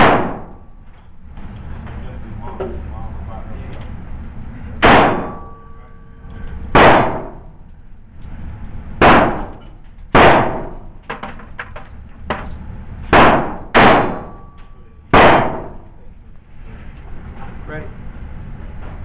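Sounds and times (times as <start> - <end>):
pistol shots echoing indoors: 0.0 - 0.7, 4.8 - 5.7, 6.7 - 7.5, 9.0 - 11.0, 13.1 - 15.9.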